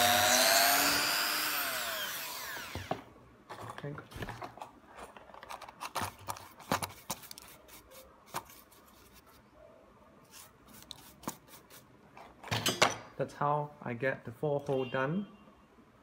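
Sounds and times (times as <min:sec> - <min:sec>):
hand rubbing plastic sheet: 0:04.3 - 0:09.4.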